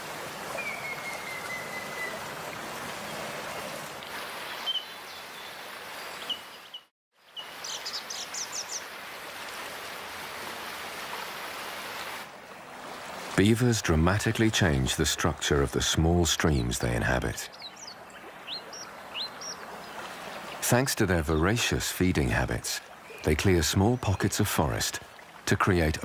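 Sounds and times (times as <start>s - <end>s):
water rushing over dam: 0.0s - 0.6s, 9.1s - 17.5s, 19.7s - 26.0s
birds calling: 4.4s - 8.9s, 16.4s - 21.8s, 22.9s - 24.8s.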